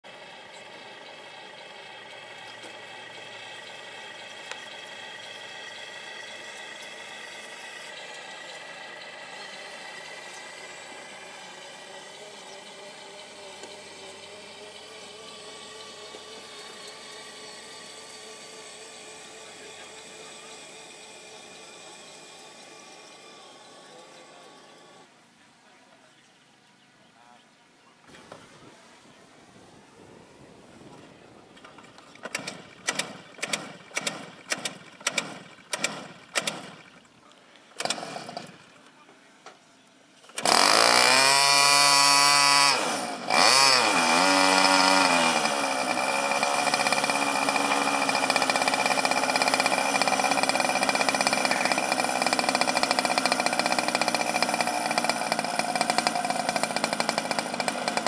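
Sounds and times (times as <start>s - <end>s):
model helicopter engine starting: 0.0s - 25.1s, 31.6s - 39.0s, 40.2s - 58.0s
small motor humming with whine: 0.0s - 25.1s, 40.2s - 58.0s.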